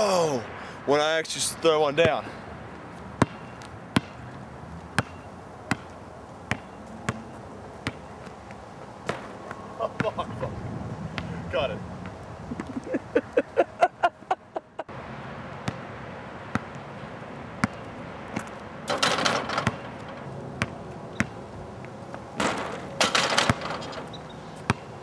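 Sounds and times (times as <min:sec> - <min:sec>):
basketball bouncing on asphalt: 0:02.0 - 0:10.2, 0:11.1 - 0:11.3, 0:15.6 - 0:17.0, 0:17.6 - 0:25.0.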